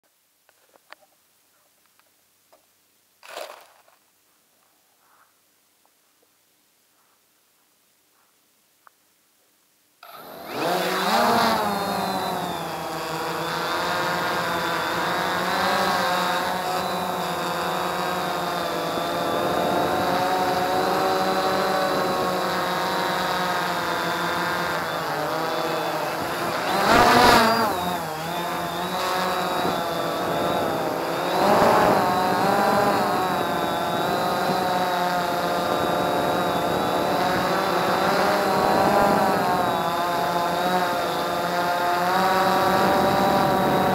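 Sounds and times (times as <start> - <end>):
drone propellers whining: 10.0 - 43.9.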